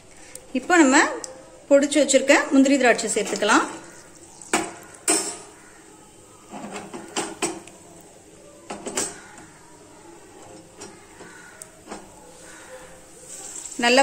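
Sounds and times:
faint sizzle: 0:00.0 - 0:14.0
crackling bursts: 0:03.0 - 0:14.0.

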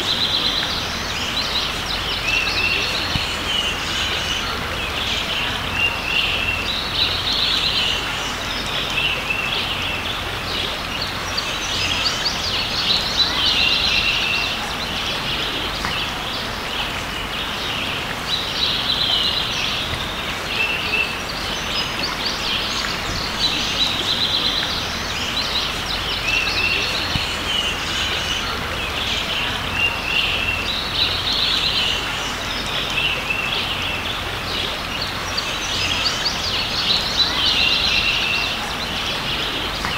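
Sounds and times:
creek water running: 0:00.0 - 0:39.9
songbirds chirping: 0:00.0 - 0:39.9.

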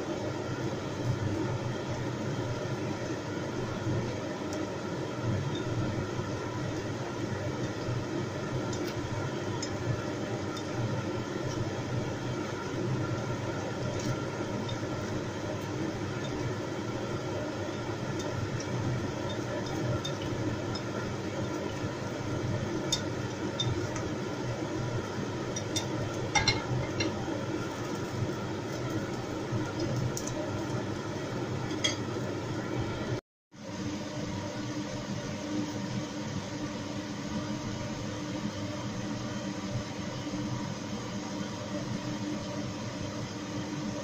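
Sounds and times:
utensils clinking on claypot: 0:25.6 - 0:27.2.

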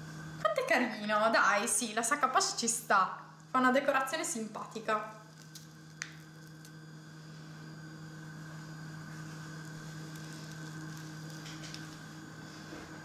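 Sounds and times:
low electrical hum with hiss: 0:00.0 - 0:13.0.

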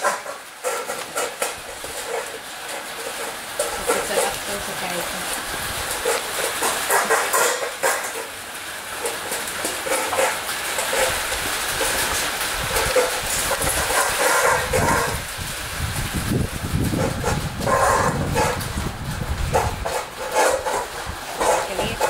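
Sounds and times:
metal bowls clinking: 0:00.0 - 0:08.4
dogs crunching food: 0:00.0 - 0:22.0.

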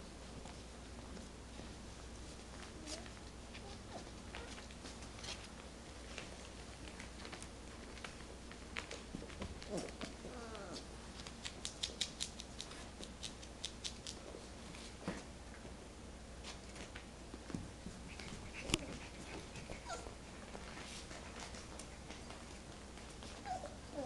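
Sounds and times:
puppies scuffling: 0:00.2 - 0:11.6, 0:16.4 - 0:24.0
puppy whimper: 0:09.7 - 0:10.9, 0:18.2 - 0:20.2, 0:23.3 - 0:24.0.

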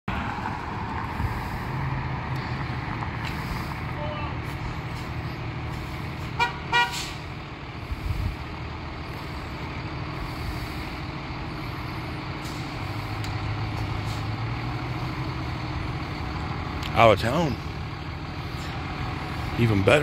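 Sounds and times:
fire truck diesel engine running: 0:00.1 - 0:20.0.

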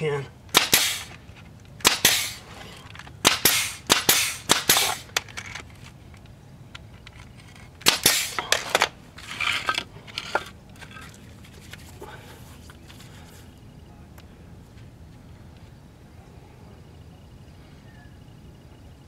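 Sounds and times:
brad nailer shots: 0:00.5 - 0:01.2, 0:01.8 - 0:02.4, 0:03.2 - 0:05.3, 0:07.8 - 0:09.7.

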